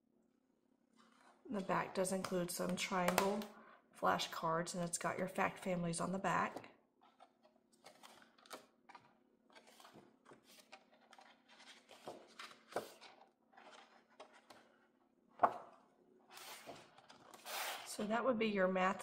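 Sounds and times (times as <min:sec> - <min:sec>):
cardstock pages rustling: 0:07.0 - 0:15.7, 0:16.3 - 0:17.9.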